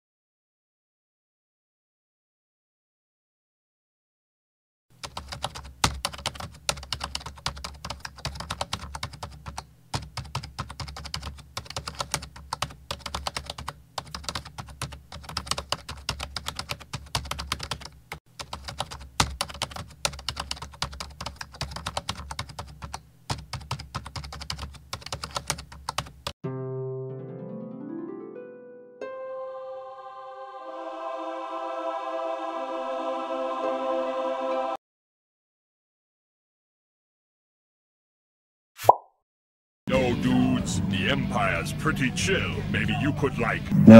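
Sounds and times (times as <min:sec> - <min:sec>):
rapid keyboard typing: 0:05.0 - 0:26.4.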